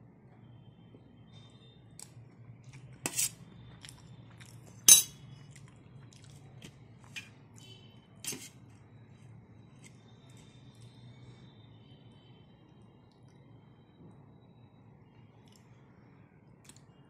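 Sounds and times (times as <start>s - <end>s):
spoon clinking on steel plate: 4.9s - 5.2s.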